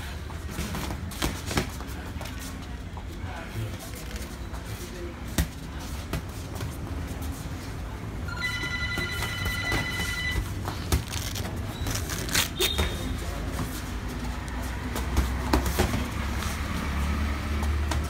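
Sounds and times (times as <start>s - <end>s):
boxing gloves slapping: 0.4s - 2.1s, 14.5s - 16.5s.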